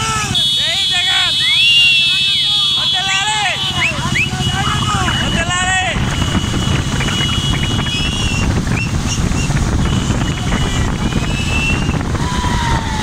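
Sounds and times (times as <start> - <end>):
motorcycle engines running: 0.0 - 13.0
wind buffeting on microphone: 3.8 - 13.0.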